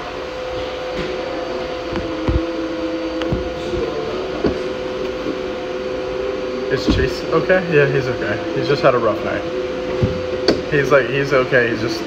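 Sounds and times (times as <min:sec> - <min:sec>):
exercise bike whirring: 0:00.0 - 0:12.0.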